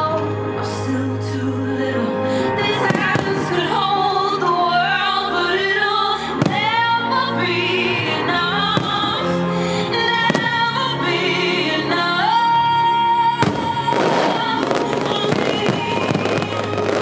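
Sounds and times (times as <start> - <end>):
operatic singing: 0.0 - 17.0
orchestral music: 0.0 - 17.0
firework bangs: 2.8 - 3.5, 6.4 - 6.8, 8.7 - 9.2, 10.3 - 10.7, 13.4 - 17.0.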